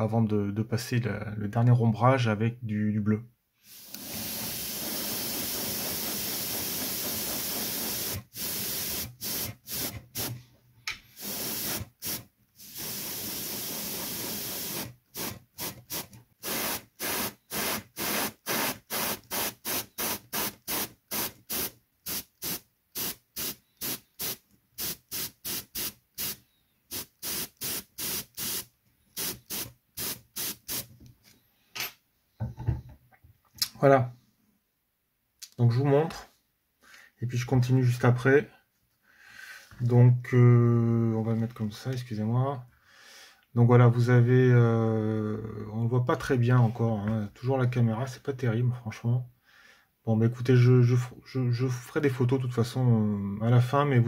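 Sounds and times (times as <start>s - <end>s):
airbrush spraying hiss: 3.6s - 10.4s, 11.2s - 30.9s.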